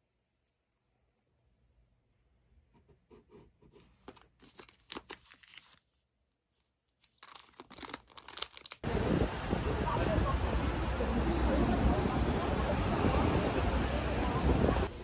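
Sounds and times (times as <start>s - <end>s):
plastic packaging crinkling: 4.0s - 6.0s, 7.0s - 8.8s.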